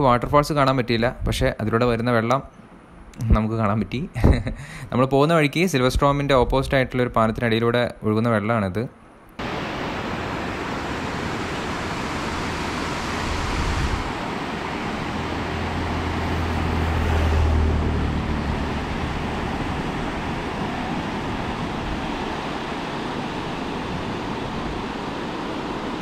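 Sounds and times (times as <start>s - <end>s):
river water rushing: 9.4s - 26.0s.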